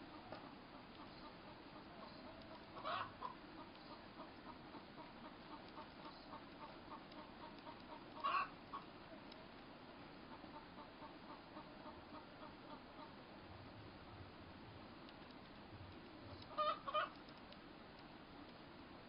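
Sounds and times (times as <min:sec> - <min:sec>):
soft ticking: 0:00.0 - 0:19.0
animal calls: 0:00.1 - 0:09.0, 0:16.4 - 0:17.2.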